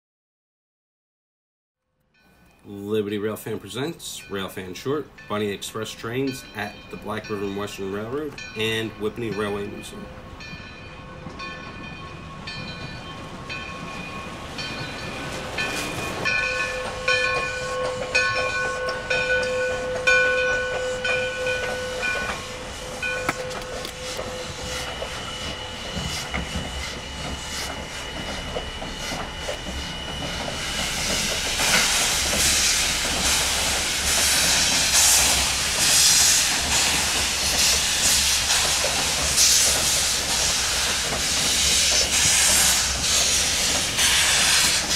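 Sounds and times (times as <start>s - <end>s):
locomotive exhaust chuffing and hissing: 11.7s - 44.9s
steam locomotive whistle: 15.7s - 44.9s.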